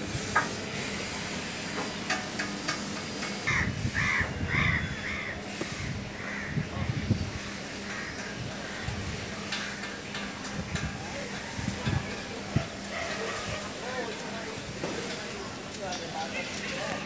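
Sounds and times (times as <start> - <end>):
crow cawing: 3.5 - 6.7, 7.8 - 9.8.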